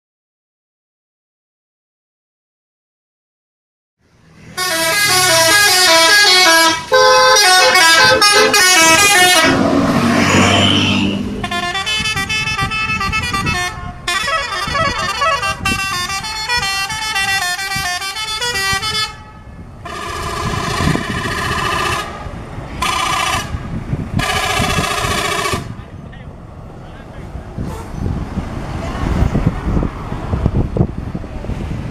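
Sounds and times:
bus horns playing melodies: 4.4s - 25.8s.

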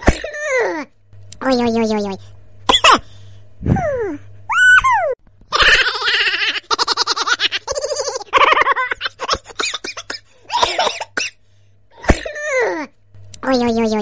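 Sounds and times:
person laughing: 3.6s - 10.9s.

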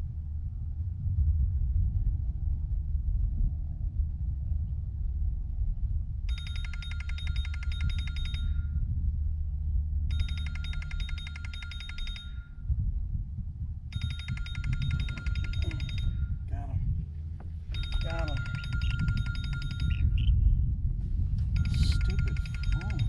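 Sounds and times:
constant low rumble: 0.0s - 23.0s
electronic ringer trilling: 6.3s - 8.7s, 10.1s - 12.5s, 14.0s - 16.4s, 17.7s - 20.4s, 21.5s - 23.0s.

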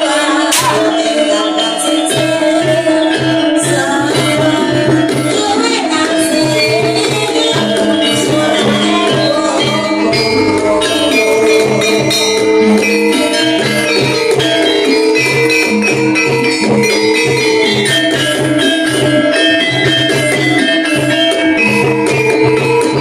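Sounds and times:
metallic gamelan melody: 0.0s - 23.0s
steady drum beat: 0.5s - 1.0s, 4.3s - 14.3s.

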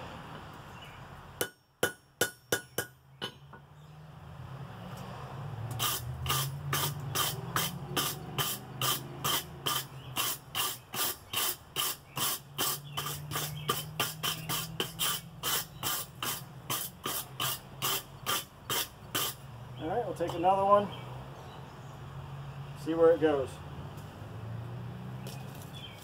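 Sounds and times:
hammer striking steel on anvil: 1.4s - 3.7s.

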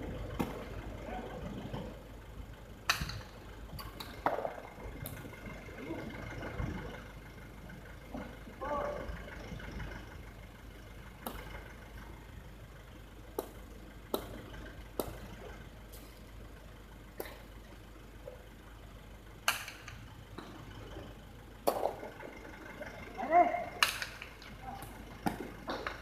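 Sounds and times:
low steady hum: 0.0s - 26.0s
ball cracking on concrete: 13.4s - 14.4s, 15.0s - 15.3s, 19.5s - 20.0s, 21.6s - 22.0s, 23.8s - 26.0s.

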